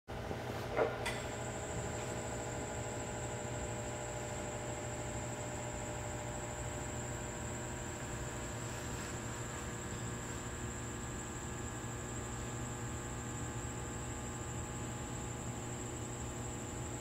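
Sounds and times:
electrical hum: 0:00.1 - 0:17.0.

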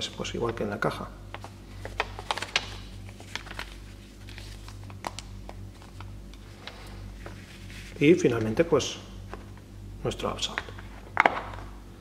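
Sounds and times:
steady low hum: 0:00.0 - 0:12.0
paper rustling and folding: 0:00.4 - 0:08.6.

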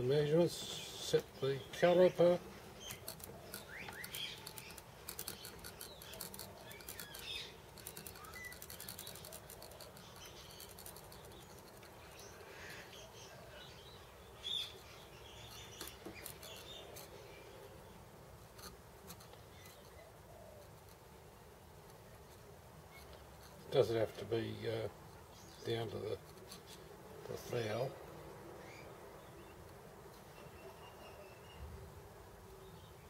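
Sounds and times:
faint bird chirps: 0:00.0 - 0:18.0, 0:28.5 - 0:31.9.

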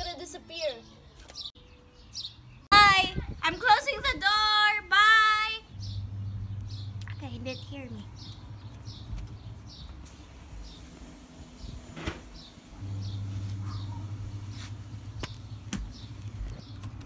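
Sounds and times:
low hum: 0:05.7 - 0:07.4
small bird chirping: 0:05.7 - 0:10.9.

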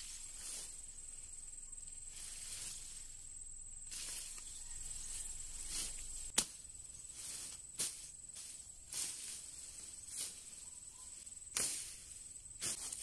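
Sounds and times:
machete swishing through grass: 0:00.0 - 0:00.9, 0:02.1 - 0:03.2, 0:03.9 - 0:13.0
machete chops: 0:06.3 - 0:06.6.

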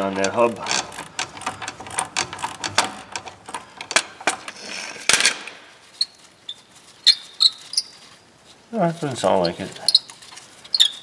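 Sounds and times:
hand ratchet clicking: 0:00.0 - 0:04.6.

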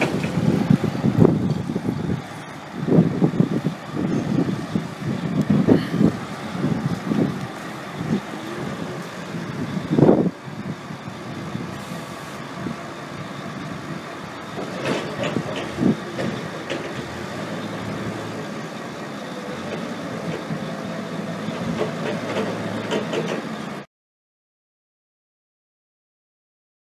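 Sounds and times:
diesel engine running: 0:00.0 - 0:23.9
loud knocks and clunks: 0:14.6 - 0:17.1, 0:21.6 - 0:23.5.

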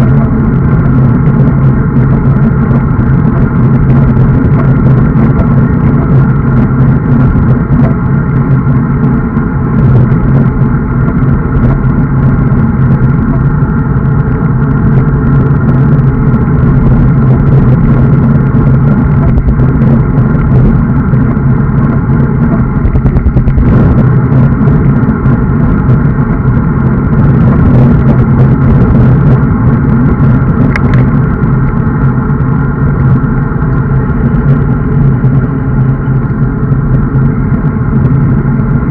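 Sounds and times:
road rumble: 0:00.0 - 0:38.9
wind rush: 0:00.0 - 0:38.9.

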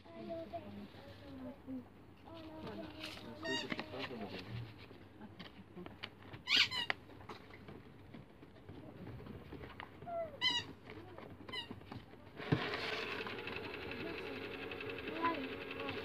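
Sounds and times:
small electric motor whirring: 0:12.4 - 0:16.0.

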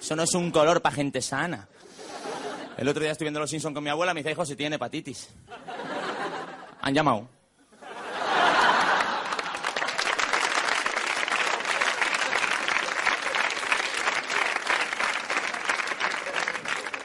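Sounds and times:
studio audience applauding: 0:08.2 - 0:17.0.

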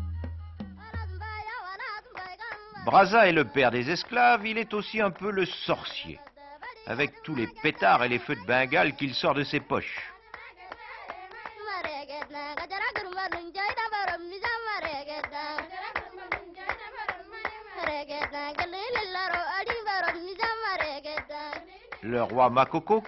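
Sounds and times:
rhythmic hand clapping: 0:00.3 - 0:23.0
person singing: 0:00.8 - 0:10.1.

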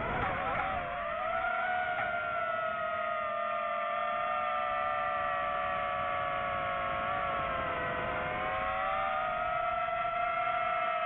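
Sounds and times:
drone motors whining: 0:00.0 - 0:11.0.

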